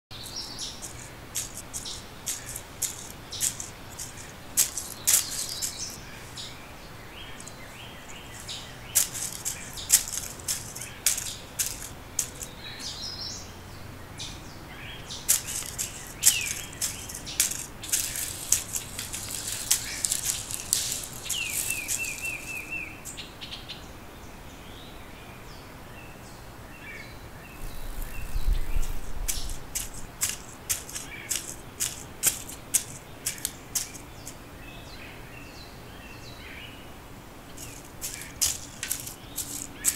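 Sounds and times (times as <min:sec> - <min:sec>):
sharp clicks and crackles: 0:00.1 - 0:06.0, 0:07.4 - 0:12.5, 0:15.3 - 0:23.2, 0:27.6 - 0:34.4, 0:37.6 - 0:39.9
birds chirping: 0:00.1 - 0:39.9.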